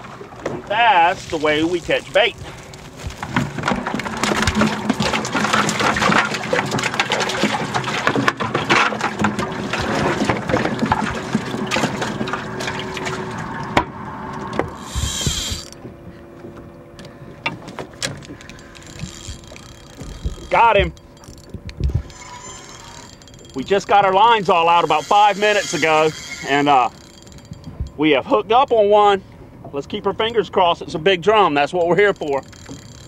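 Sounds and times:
water splashing and pouring: 3.2s - 13.8s.

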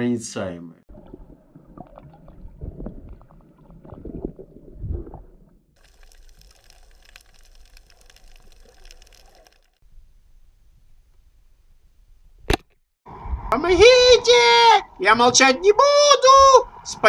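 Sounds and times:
muffled underwater sloshing: 0.9s - 9.8s
faint crackling hiss: 5.8s - 12.5s.

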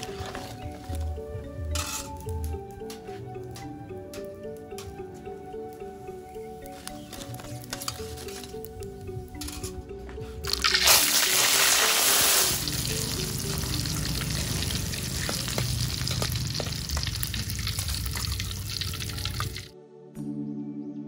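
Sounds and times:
oil crackling and popping: 10.4s - 19.7s
food sizzling in hot oil: 10.5s - 19.7s.

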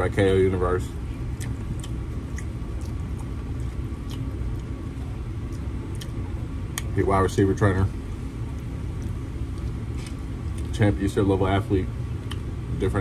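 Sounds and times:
low hum: 0.0s - 13.0s
chewing: 1.2s - 7.0s, 8.4s - 10.9s, 12.2s - 12.5s.

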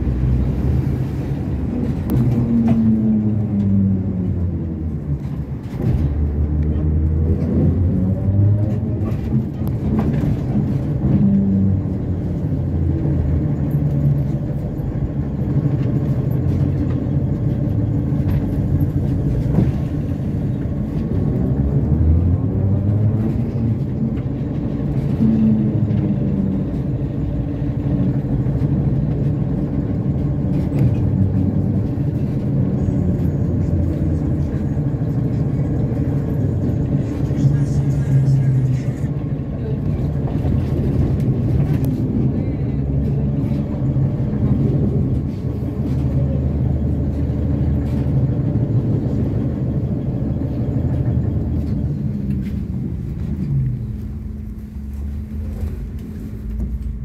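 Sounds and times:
low rumble of running gear: 39.2s - 57.0s.

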